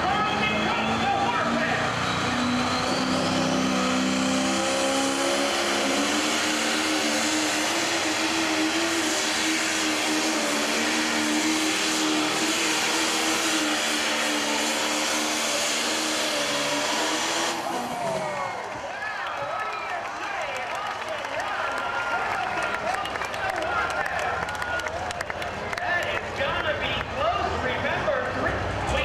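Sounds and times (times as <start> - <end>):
diesel tractor engine running under load: 0.0 - 19.1.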